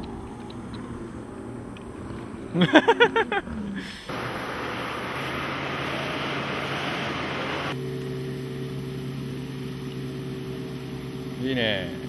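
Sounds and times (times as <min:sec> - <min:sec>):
wind and water rushing: 0:04.1 - 0:07.8
outboard motor running: 0:04.1 - 0:12.0.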